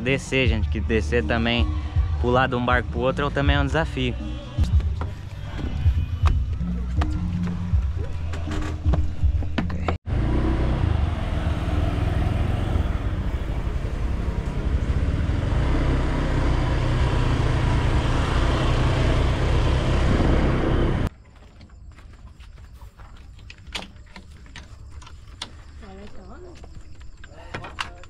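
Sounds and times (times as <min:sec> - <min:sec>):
motorbike engine rumbling: 0:08.4 - 0:21.1.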